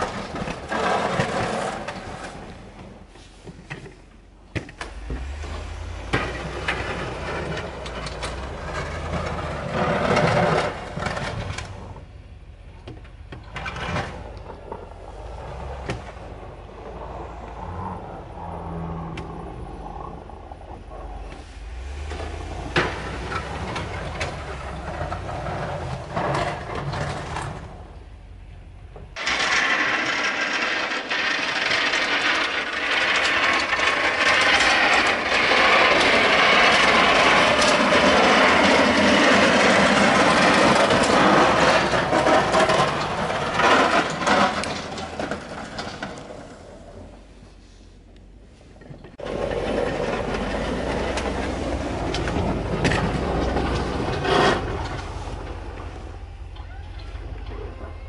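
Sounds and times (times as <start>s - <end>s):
scattered clicks and knocks: 29.0s - 46.4s, 48.8s - 55.9s.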